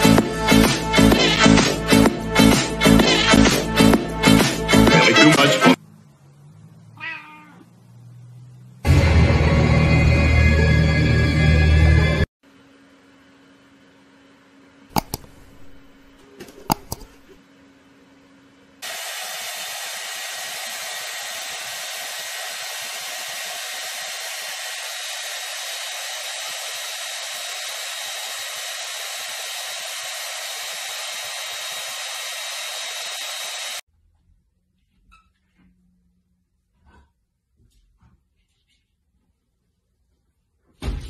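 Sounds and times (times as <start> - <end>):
sharp taps: 14.9 - 15.9, 16.5 - 17.4
hair dryer running: 14.9 - 17.4, 18.8 - 33.8.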